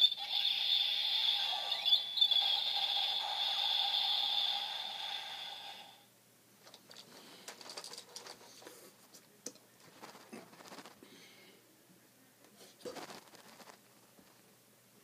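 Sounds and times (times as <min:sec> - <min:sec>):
toy electronic high tone: 0:00.0 - 0:05.9.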